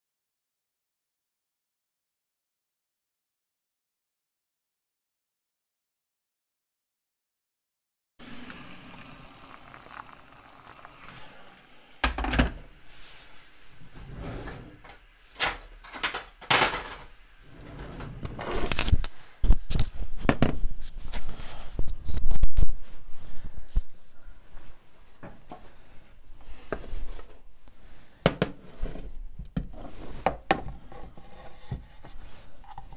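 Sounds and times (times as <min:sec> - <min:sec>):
knocks and clunks on counter: 0:20.3 - 0:20.6.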